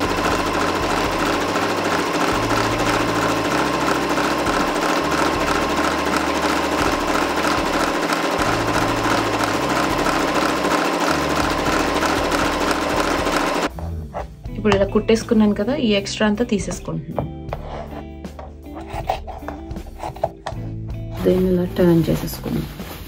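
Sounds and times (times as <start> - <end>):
sewing machine stitching: 0.0 - 13.7.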